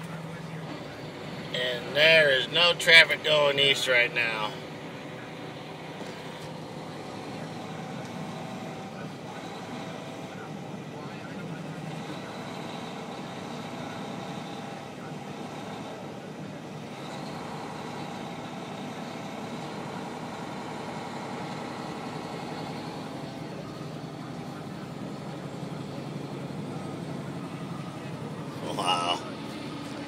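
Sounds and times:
road noise: 0.0 - 30.0
truck diesel engine drone: 0.0 - 30.0.

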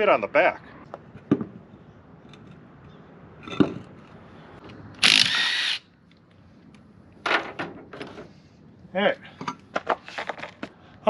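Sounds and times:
impact wrench burst: 5.0 - 5.8.

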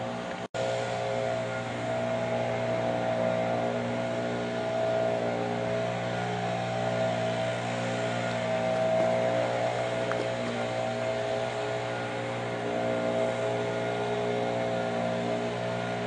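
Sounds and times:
diesel locomotive engine droning: 0.0 - 16.0.

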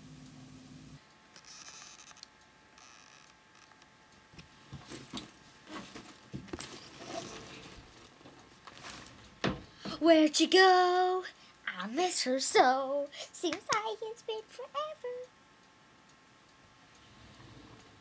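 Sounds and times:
faint low hum: 0.0 - 18.0
soft rustling: 4.7 - 9.4.

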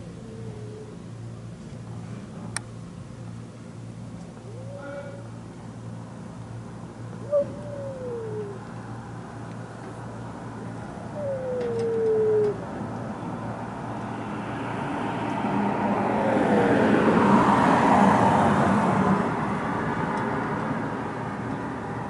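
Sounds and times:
car passing: 13.5 - 22.0.

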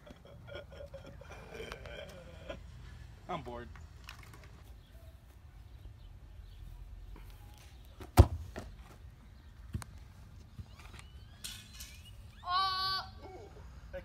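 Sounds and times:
faint outdoor background: 0.0 - 14.0
ball kicked with a thump: 8.0 - 8.8.

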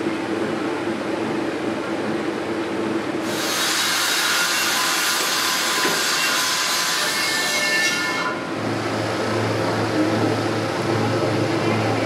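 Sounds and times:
washing machine churning water: 8.4 - 12.0
low motor hum: 8.5 - 12.0.

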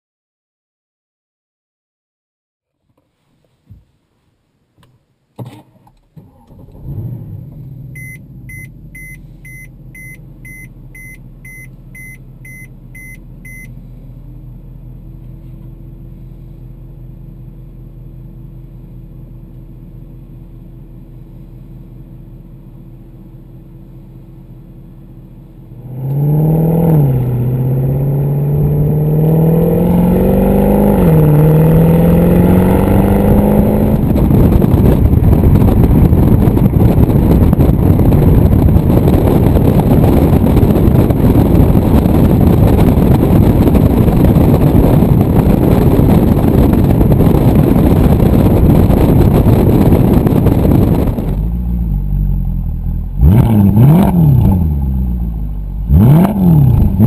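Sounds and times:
car engine starting and idling: 5.3 - 57.0
engine accelerating through upshifts: 6.2 - 13.7, 25.5 - 57.0.

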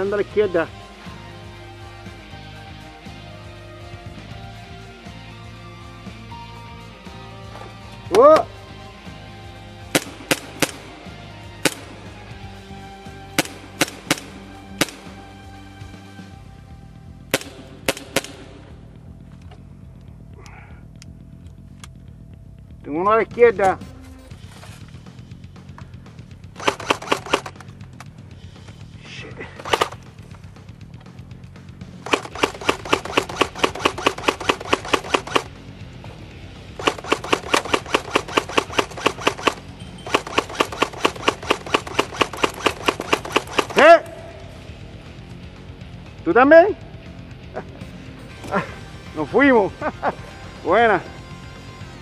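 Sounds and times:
airsoft gun firing: 9.9 - 12.1, 13.3 - 15.2, 17.3 - 18.8, 26.6 - 27.7, 29.6 - 30.1, 32.0 - 35.6, 36.8 - 44.2
airsoft gun pops: 13.4 - 15.1
faint clicks: 19.3 - 22.4.

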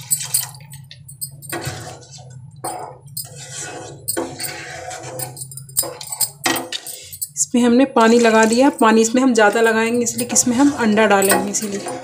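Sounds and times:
spatula scraping through curry: 3.2 - 5.4, 8.0 - 12.0.

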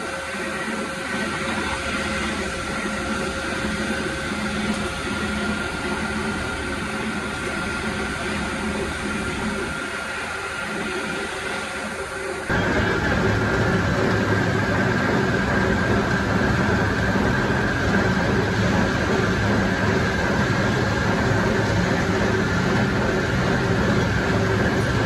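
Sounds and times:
machinery running with motor whine: 0.0 - 25.0
low hum: 12.3 - 25.0.

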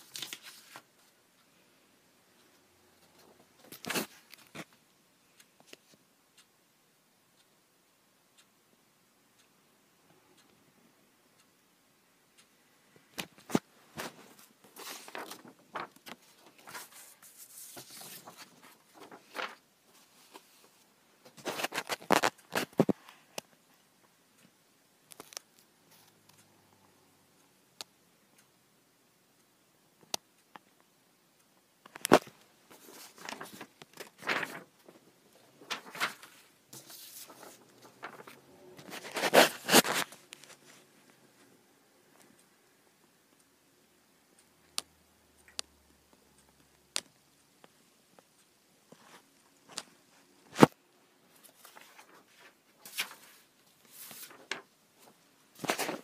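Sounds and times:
paper rustling and scraping: 0.0 - 0.9, 13.4 - 20.8, 21.4 - 23.0, 32.7 - 35.0, 35.6 - 40.7, 51.4 - 56.0.

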